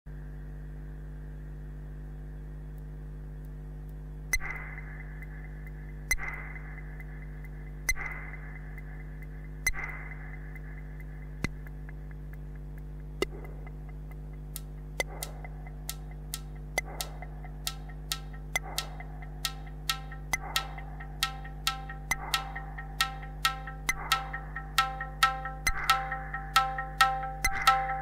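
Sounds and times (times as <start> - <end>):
hum and hiss of signal noise: 0.1 - 28.0
sharp clicks: 2.8 - 26.0
synthesizer drone: 4.3 - 28.0
percussive hits: 4.4 - 7.0, 7.9 - 12.2, 13.0 - 28.0.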